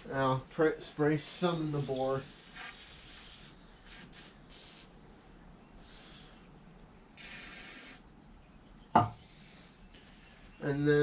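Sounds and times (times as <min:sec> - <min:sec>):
aerosol spray hissing: 0:01.6 - 0:04.9, 0:07.2 - 0:08.0.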